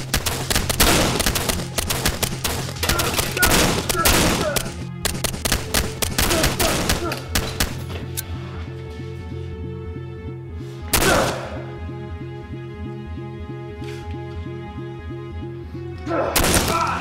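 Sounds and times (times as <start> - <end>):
pistol gunfire: 0.0 - 7.9, 11.0 - 11.5, 16.4 - 17.0
film score with pulsing bass: 0.0 - 17.0.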